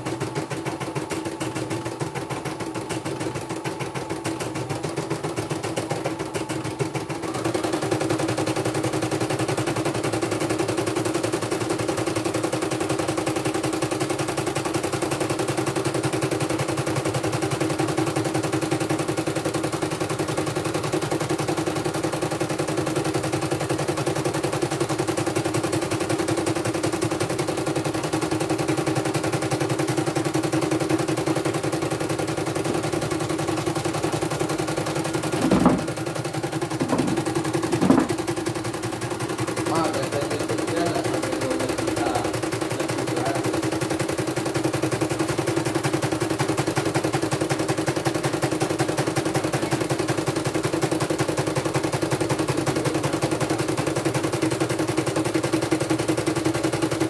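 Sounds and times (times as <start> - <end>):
motor hum: 34.8 - 38.4
embroidery machine needle rattling: 35.1 - 42.4.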